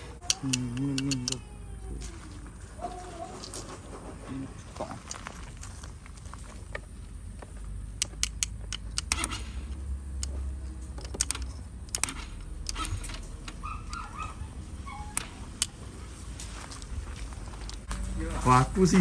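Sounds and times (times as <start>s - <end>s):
screwdriver clicking on metal: 0.2s - 1.4s, 11.0s - 14.1s.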